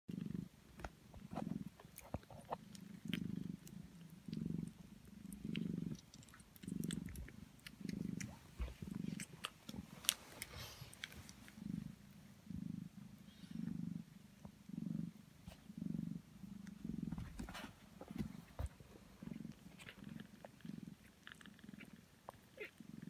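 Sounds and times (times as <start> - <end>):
cats purring: 0.1 - 23.0
kittens suckling wet clicks: 1.8 - 11.6.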